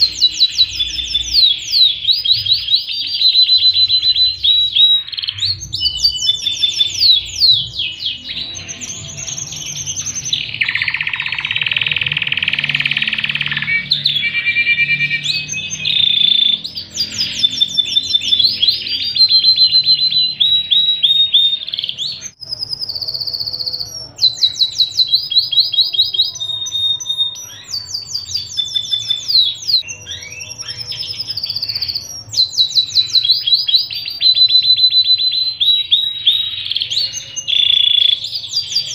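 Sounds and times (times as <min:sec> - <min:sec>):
canary singing: 0:00.0 - 0:38.9.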